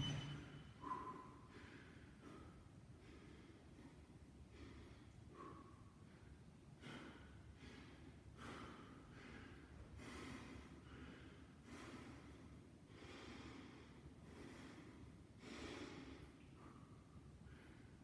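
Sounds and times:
man breathing hard: 0.8s - 18.0s.

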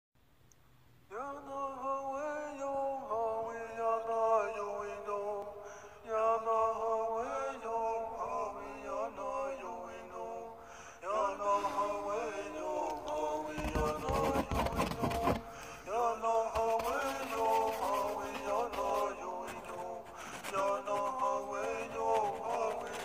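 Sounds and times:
man chanting: 1.1s - 23.0s.

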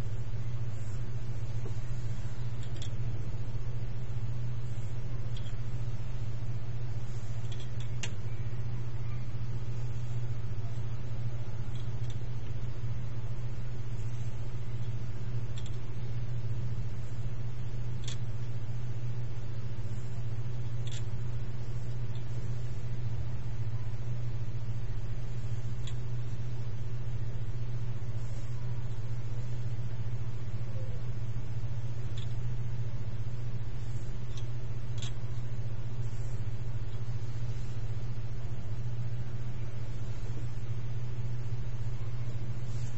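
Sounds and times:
steady low hum: 0.0s - 42.9s
faint clicks: 14.8s - 15.9s.

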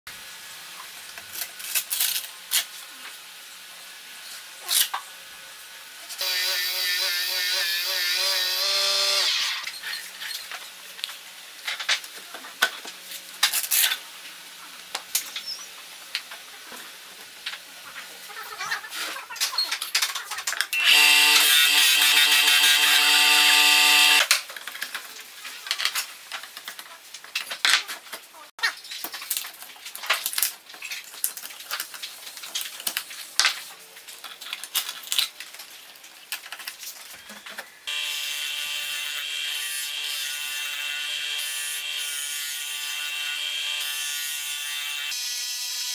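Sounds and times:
disc sander motor hum: 20.8s - 24.3s.

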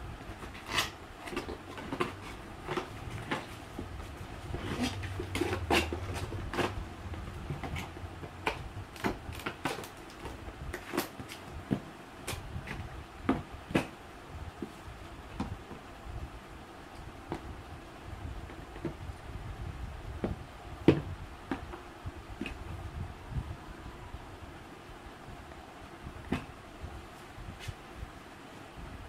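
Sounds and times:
cardboard and plastic parts handled: 0.2s - 13.9s.

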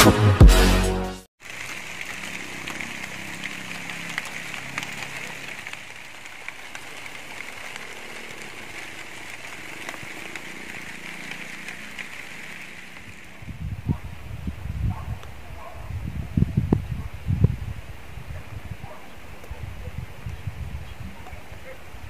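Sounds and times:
steady high hiss: 1.4s - 14.4s.

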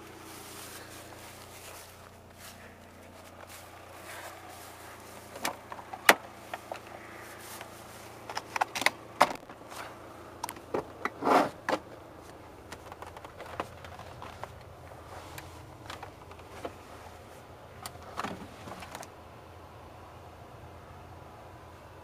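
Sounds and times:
faint steady hum: 0.0s - 22.0s
handling clicks and knocks in car: 2.7s - 19.1s.

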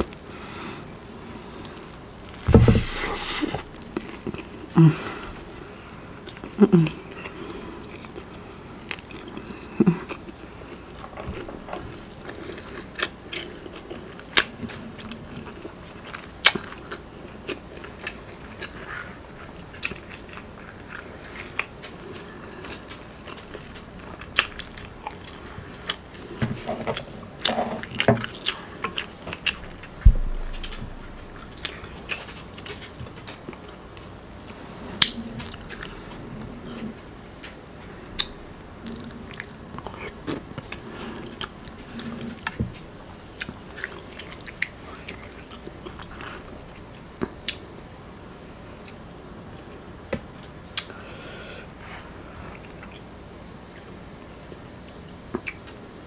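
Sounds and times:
loud thump: 2.5s - 2.9s, 30.0s - 31.2s
chewing and biting food: 6.2s - 33.9s.

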